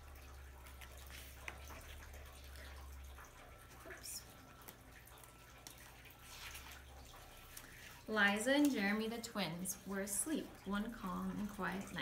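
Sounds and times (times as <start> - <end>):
faint low room hum: 0.0 - 12.0
book page turning rustle: 0.6 - 2.7, 4.6 - 8.9.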